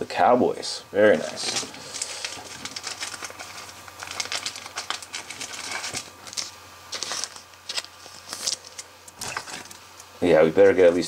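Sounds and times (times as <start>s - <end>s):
card crinkling and rustling: 1.1s - 9.8s.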